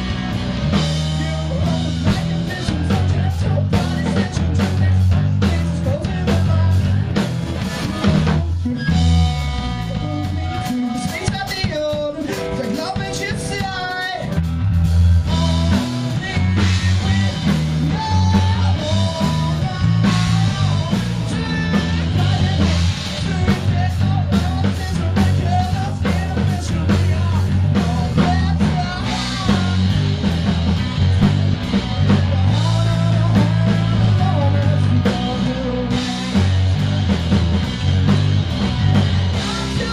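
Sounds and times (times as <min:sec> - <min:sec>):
person singing: 0:00.0 - 0:14.5, 0:15.2 - 0:37.2, 0:38.2 - 0:39.9
drum kit: 0:00.0 - 0:39.9
electric guitar: 0:00.0 - 0:39.9.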